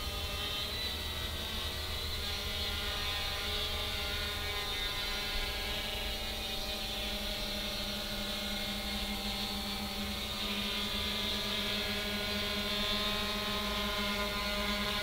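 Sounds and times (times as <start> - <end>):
drone propellers humming: 0.0 - 15.0.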